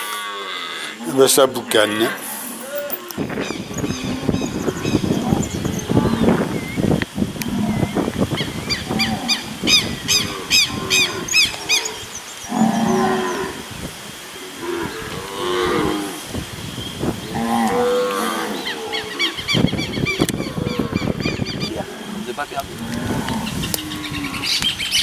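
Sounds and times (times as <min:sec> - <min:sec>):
cattle mooing: 0:17.3 - 0:19.4, 0:20.2 - 0:24.6.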